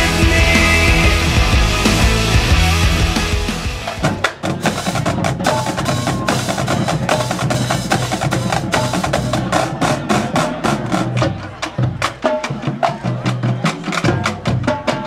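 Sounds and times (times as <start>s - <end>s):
music playing: 0.0s - 4.3s
snare drumline playing: 0.0s - 15.0s.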